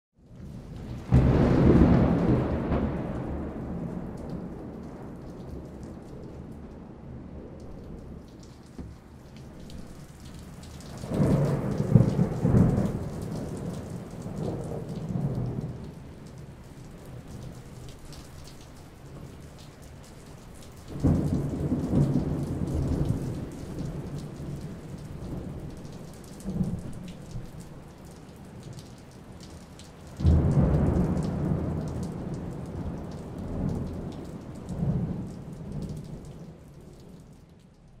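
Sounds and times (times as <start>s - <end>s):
steady rain: 0.2s - 38.0s
thunder rolling: 0.8s - 16.0s.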